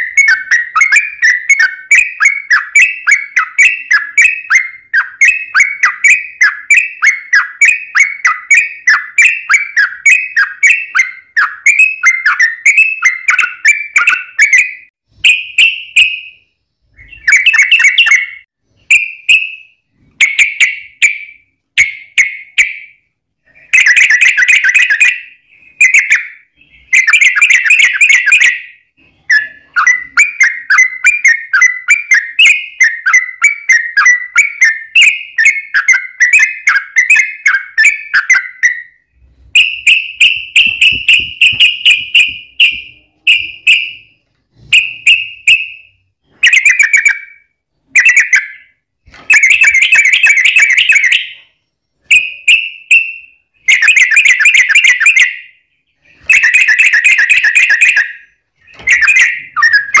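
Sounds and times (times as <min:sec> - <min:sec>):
bird chattering song: 0:00.0 - 1:00.0.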